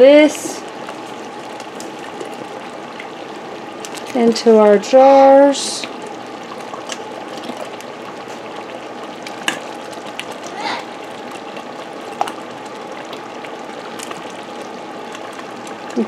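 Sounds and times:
sauce bubbling in a pot: 0.0s - 16.0s.

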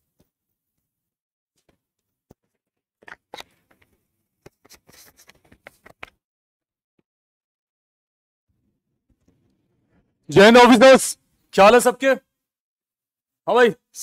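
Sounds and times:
rubbing and rustling on microphone: 2.4s - 6.2s.

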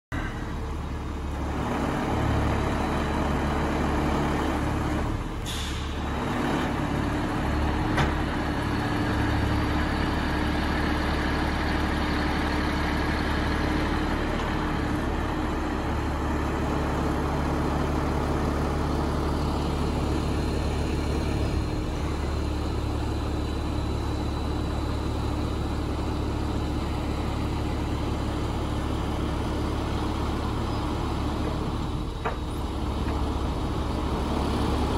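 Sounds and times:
truck engine running: 0.1s - 34.9s
hydraulic crane: 0.2s - 34.9s
short hiss: 5.4s - 6.0s.

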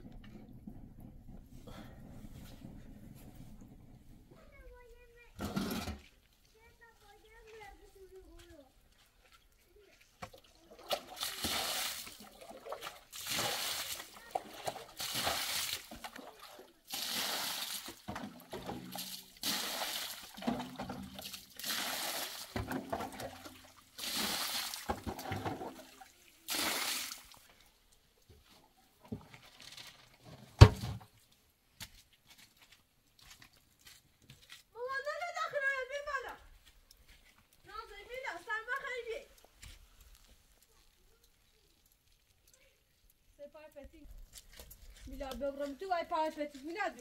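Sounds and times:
water poured onto dirt: 8.2s - 28.4s, 36.5s - 47.0s
pan scooping water from metal trough: 9.2s - 27.5s.

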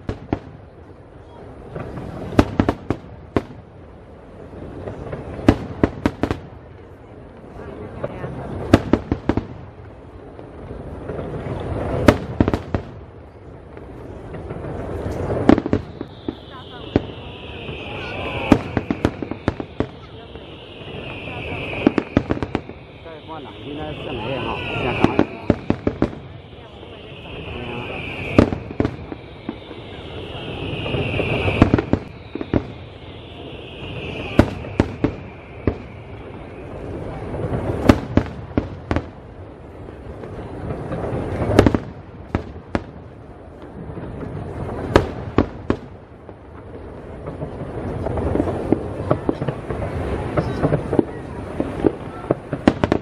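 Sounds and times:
rumbling wash of noise: 0.0s - 53.0s
firework shells bursting with bangs: 8.6s - 53.0s
high whistling tones sweeping down: 15.8s - 37.4s.

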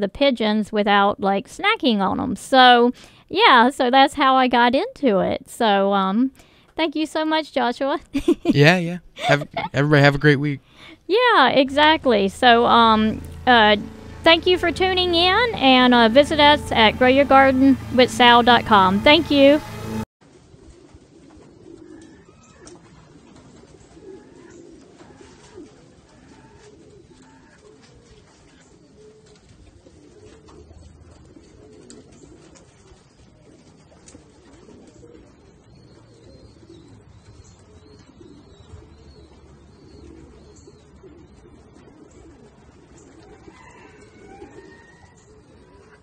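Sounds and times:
doves cooing: 20.3s - 46.0s.

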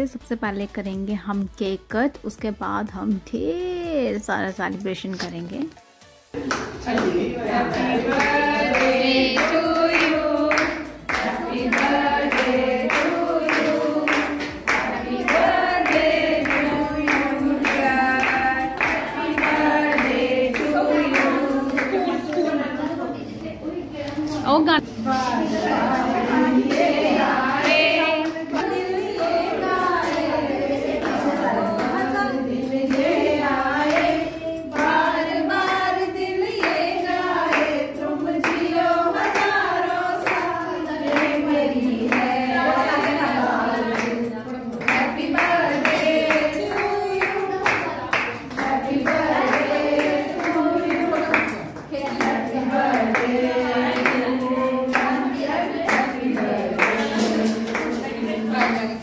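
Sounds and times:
people clapping in time: 6.4s - 22.5s, 33.8s - 59.0s
women singing together: 6.4s - 59.0s.

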